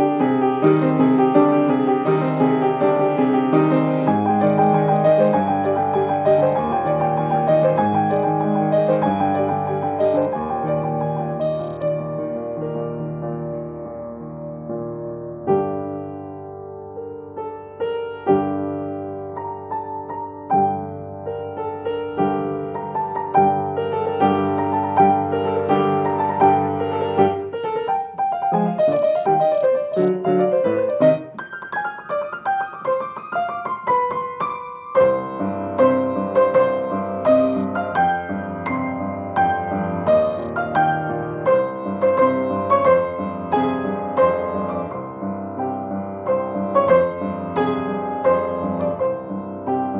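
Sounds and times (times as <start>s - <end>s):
solo grand piano playing: 0.0s - 49.9s.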